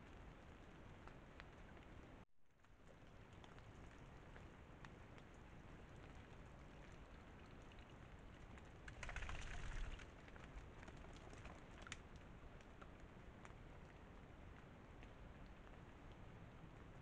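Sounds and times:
light ticks: 0:00.0 - 0:09.1.

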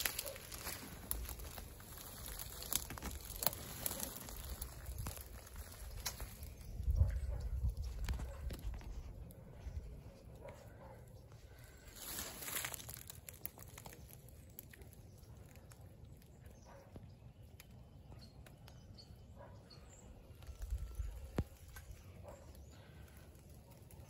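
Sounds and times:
low rumble on microphone: 0:00.9 - 0:10.7.

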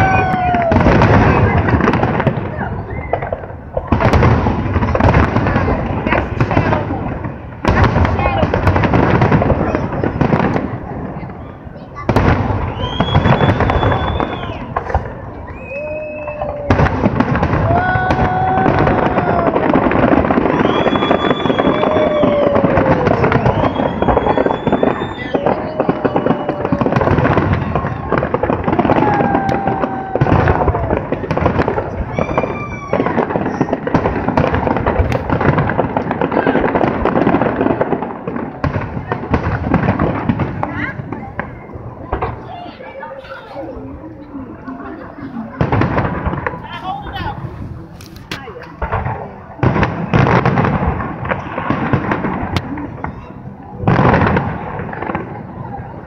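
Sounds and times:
fireworks crackling and booming: 0:00.0 - 0:56.0
spectators calling out: 0:12.6 - 0:33.6.

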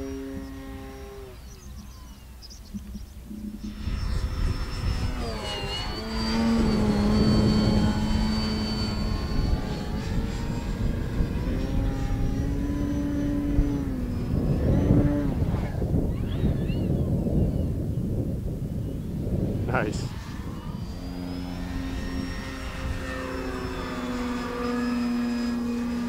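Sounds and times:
model plane electric motor whine: 0:00.0 - 0:26.0
wind noise on microphone: 0:00.0 - 0:26.0.

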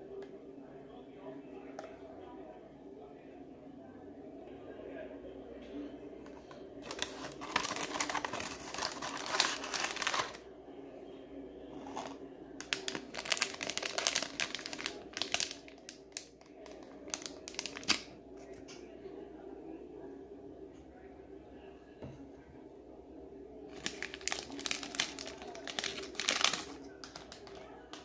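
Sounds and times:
foil bag crinkling: 0:06.8 - 0:10.4, 0:11.8 - 0:18.1, 0:23.7 - 0:28.0.

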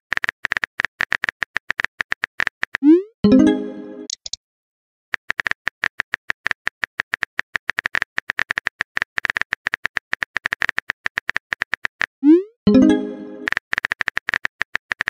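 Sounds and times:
phone keyboard typing clicks: 0:04.1 - 0:04.4.

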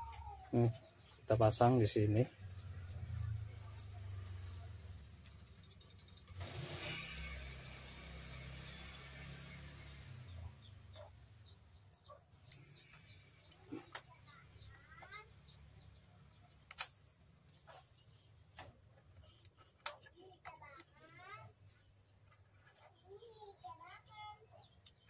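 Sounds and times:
bird chirping: 0:00.0 - 0:25.0
clicks of plastic connectors: 0:16.6 - 0:17.7, 0:18.5 - 0:20.6.

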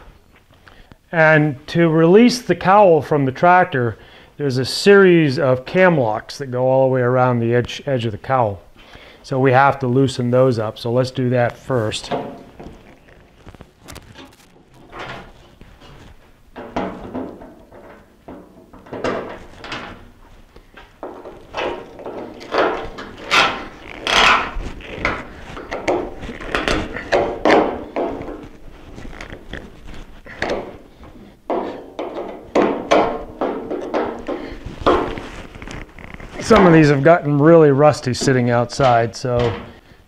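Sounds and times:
hand tool on metal fasteners: 0:21.0 - 0:36.8.

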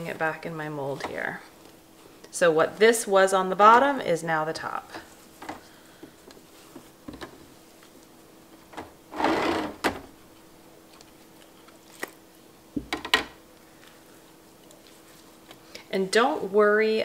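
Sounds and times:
faint steady hum: 0:00.0 - 0:17.0
plastic mold scraping on rack: 0:09.1 - 0:10.0.

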